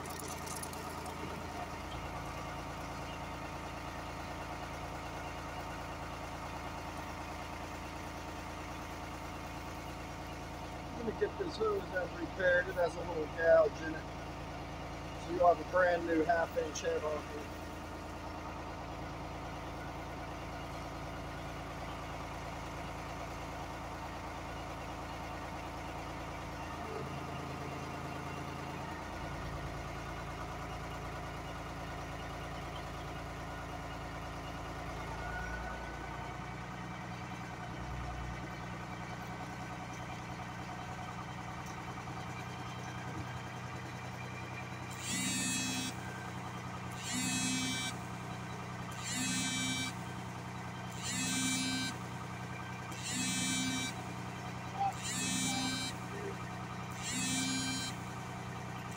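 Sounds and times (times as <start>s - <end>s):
engine and pump running: 0.0s - 58.9s
high-pitched buzzing burst: 45.0s - 46.0s, 47.0s - 48.0s, 49.0s - 50.0s, 51.0s - 52.0s, 53.0s - 54.0s, 54.9s - 56.0s, 57.0s - 58.0s.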